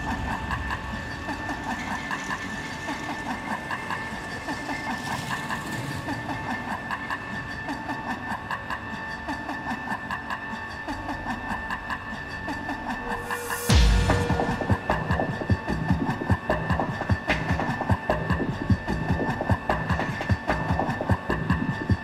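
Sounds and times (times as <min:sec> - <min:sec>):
rhythmic background music: 0:08.6 - 0:22.0
loud musical hit: 0:13.4 - 0:16.3.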